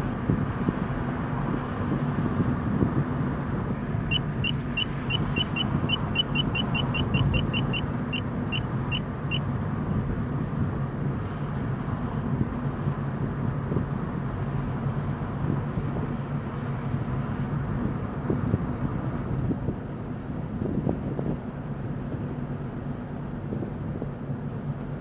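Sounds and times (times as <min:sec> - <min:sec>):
car engine and road noise: 0:00.0 - 0:25.0
radar detector beeping: 0:04.1 - 0:09.4.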